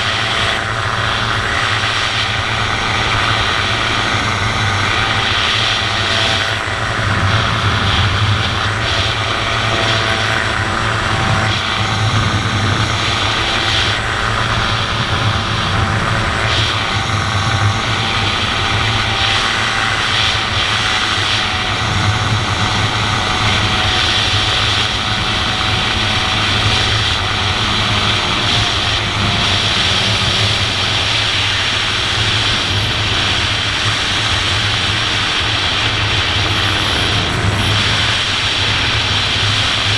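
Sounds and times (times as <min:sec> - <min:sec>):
propeller engine running: 0:00.0 - 0:39.9.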